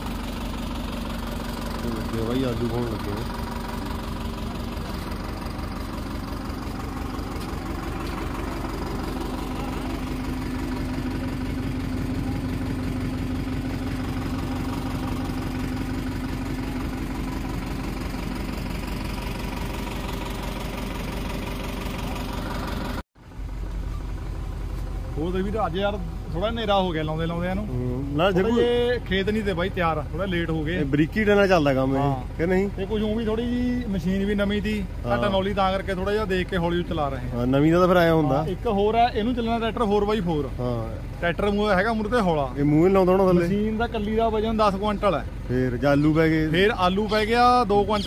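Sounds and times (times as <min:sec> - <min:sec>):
tractor diesel engine running: 0:00.0 - 0:48.0.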